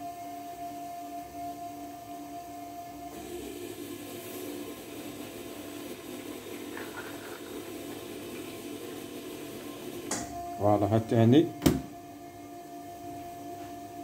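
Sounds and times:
stuffing machine humming: 3.1s - 10.6s.

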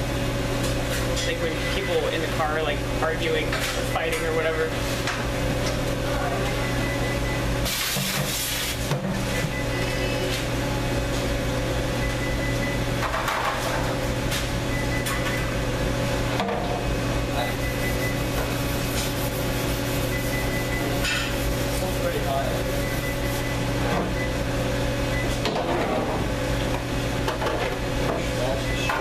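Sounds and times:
low electrical drone: 0.0s - 7.9s, 13.7s - 28.6s
thin steady whine: 1.2s - 3.5s, 11.6s - 13.0s, 16.8s - 25.4s.

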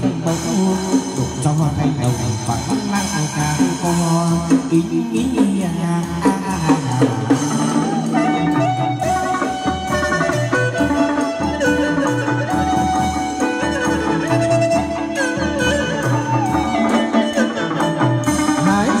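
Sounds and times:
ritual music melody: 0.0s - 19.0s
steady drum beat: 0.0s - 19.0s.

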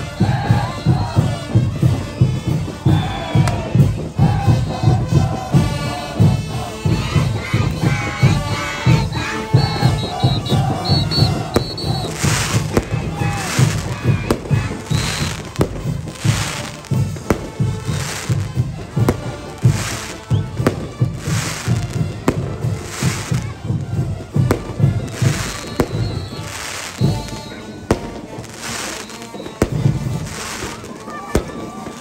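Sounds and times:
brass band playing: 0.0s - 32.0s.

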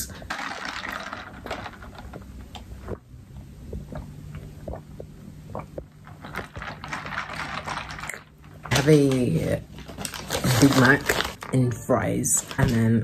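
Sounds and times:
steady low hum: 0.0s - 13.0s
paper bag rustling and crinkling: 6.2s - 13.0s.

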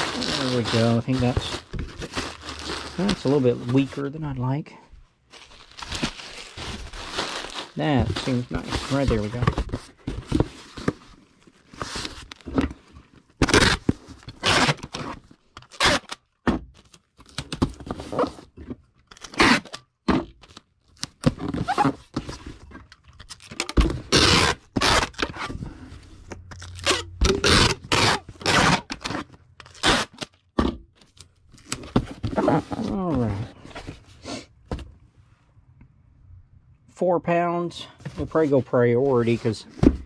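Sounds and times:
cardboard box rustling and scraping: 0.0s - 4.1s, 5.4s - 12.9s.

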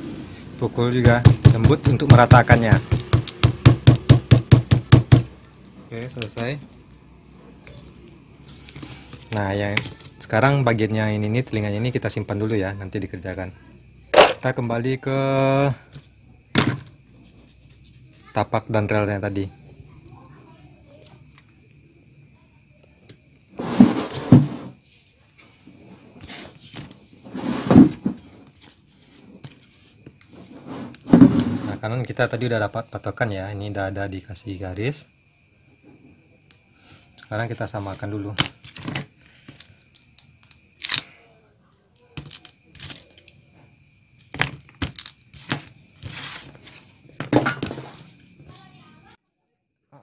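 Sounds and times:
leather strips rustling and knocking: 1.0s - 5.3s.

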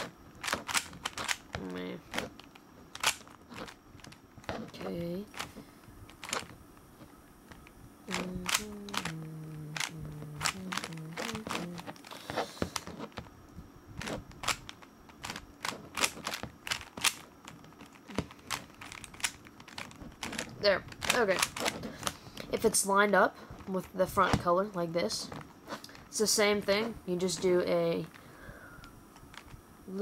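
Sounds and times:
puzzle cube clicking: 0.0s - 13.3s, 14.0s - 22.8s, 29.2s - 29.6s
person humming: 8.1s - 12.7s.

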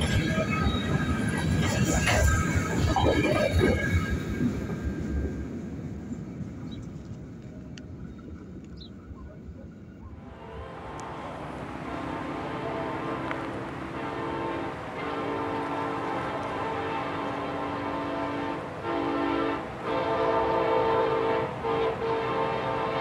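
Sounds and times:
high wheel squeal: 0.0s - 4.9s.

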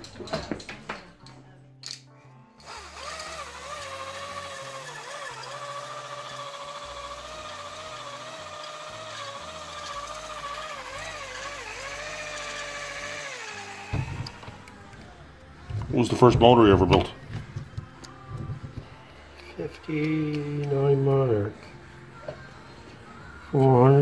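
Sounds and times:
electric drill whining: 2.6s - 15.1s.

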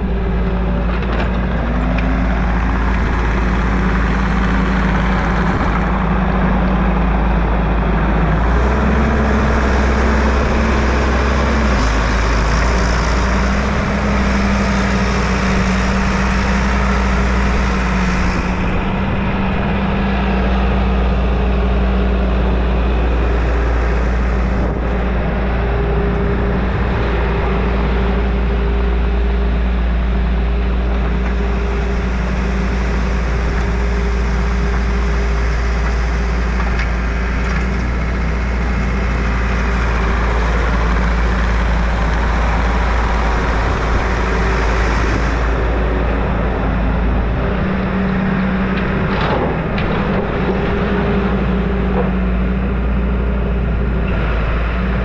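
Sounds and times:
skid steer engine rumbling: 0.0s - 55.0s.

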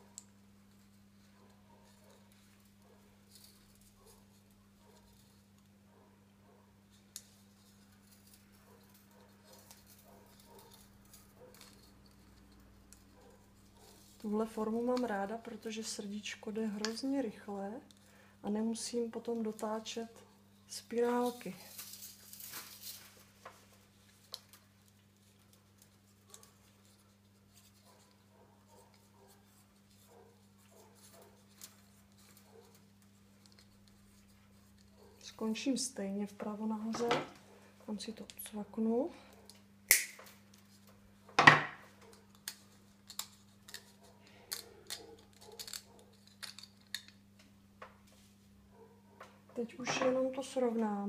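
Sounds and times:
wire clicking and scratching on wood: 6.9s - 16.0s, 19.0s - 35.4s, 40.2s - 48.0s.

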